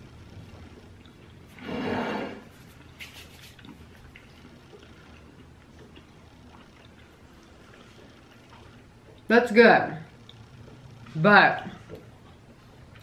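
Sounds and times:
ceramic plate scraping on wood: 1.5s - 2.7s.

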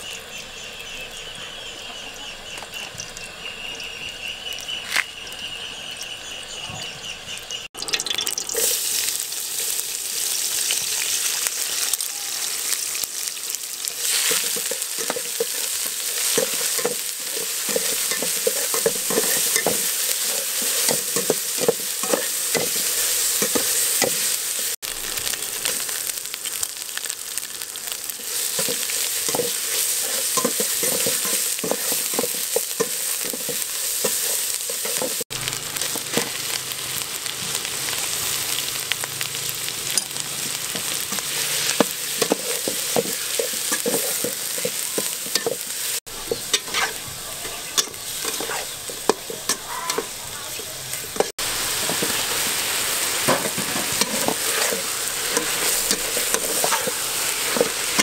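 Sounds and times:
paste sizzling in oil: 7.3s - 58.0s
spatula scraping pot: 14.0s - 24.3s, 28.4s - 35.2s, 39.9s - 52.2s, 53.3s - 58.0s.

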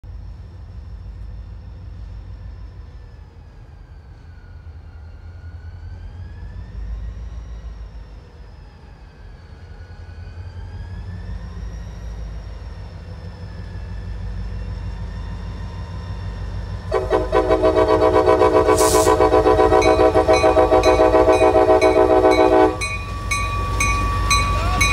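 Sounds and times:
diesel locomotive rumbling: 0.0s - 24.9s
train air horn chord: 16.9s - 23.0s.

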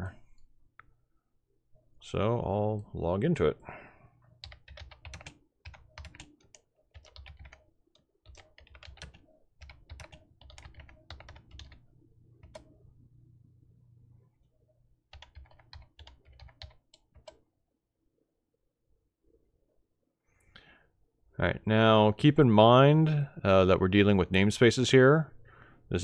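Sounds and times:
typing on computer keyboard: 4.4s - 12.7s, 15.1s - 17.4s.

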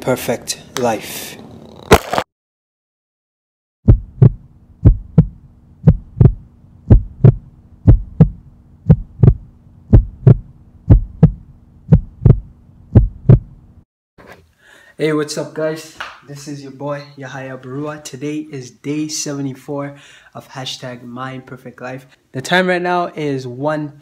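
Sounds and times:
heartbeat thumps: 3.8s - 13.6s
steady low hum: 3.9s - 13.8s.

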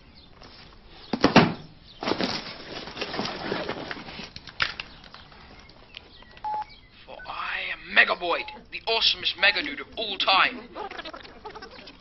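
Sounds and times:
backpack rustling: 1.9s - 5.9s.

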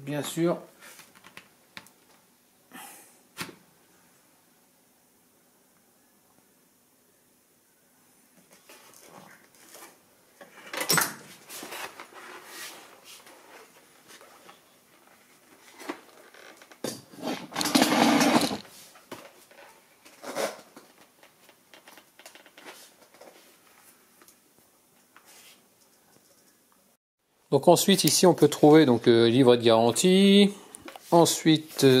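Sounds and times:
rustling: 8.4s - 26.7s.

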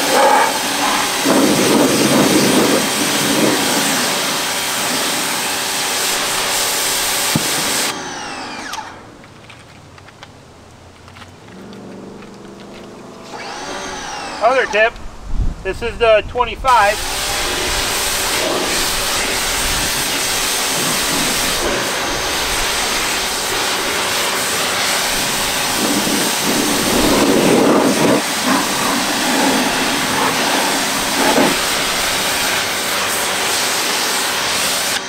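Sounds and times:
pressure washer spray hissing on metal: 0.0s - 8.0s, 16.6s - 35.0s.

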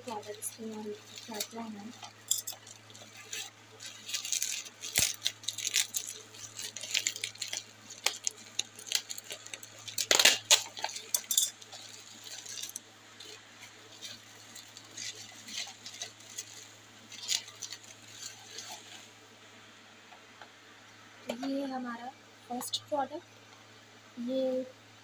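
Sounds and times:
bubble wrap crackling: 0.0s - 19.2s.

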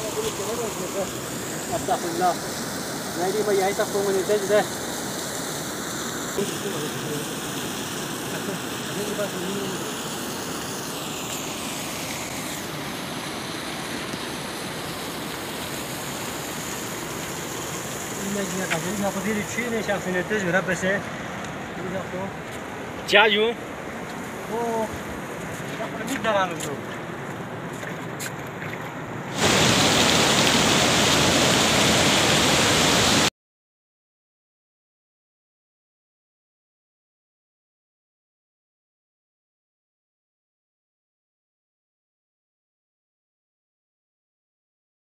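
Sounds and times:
faint outdoor hiss: 0.0s - 33.3s
water rushing: 0.0s - 33.3s.

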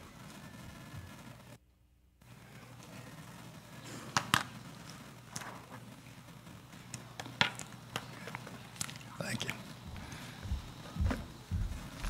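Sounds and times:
room noise: 0.0s - 12.0s.

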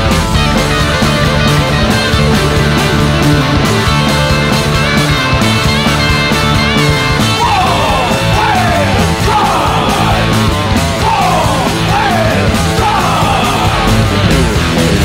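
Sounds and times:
guitar: 0.0s - 15.0s
loud rock music: 0.0s - 15.0s
shouted vocals: 7.1s - 14.3s.

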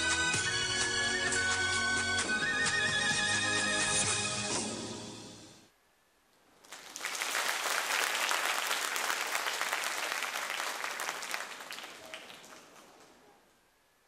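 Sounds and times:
audience applauding: 6.6s - 13.3s.

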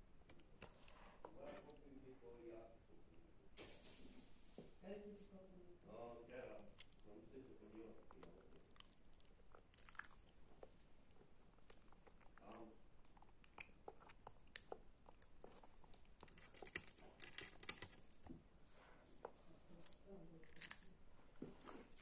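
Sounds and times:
person chewing crunchy food: 6.5s - 18.3s, 20.4s - 22.0s.

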